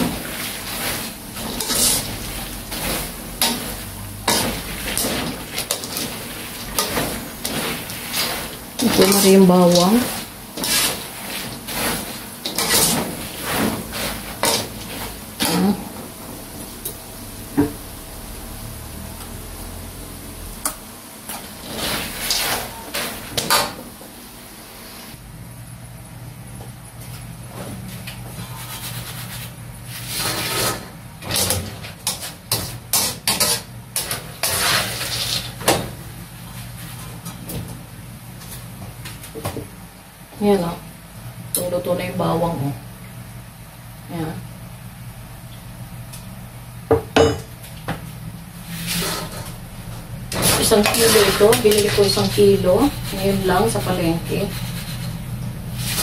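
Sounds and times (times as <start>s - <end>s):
skimmer scraping peanuts in a wok: 0.2s - 15.8s, 21.5s - 23.5s, 28.4s - 35.6s, 48.7s - 49.5s, 50.3s - 56.0s
low hum: 15.1s - 23.0s.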